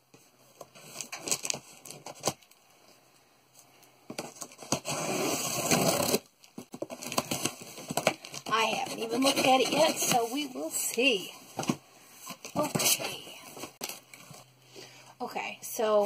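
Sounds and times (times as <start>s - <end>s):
cardboard rustling: 4.1s - 14.5s
tape ripping off cardboard: 4.4s - 8.6s
blade slitting packing tape: 4.9s - 6.2s.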